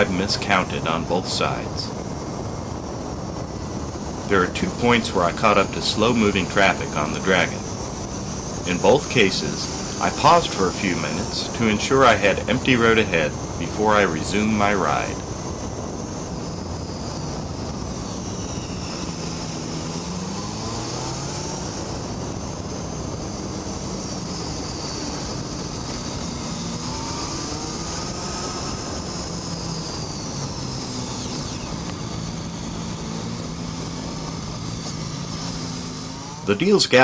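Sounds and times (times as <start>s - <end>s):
motorcycle engine revving: 0.0s - 37.0s
wind rushing: 0.0s - 37.0s.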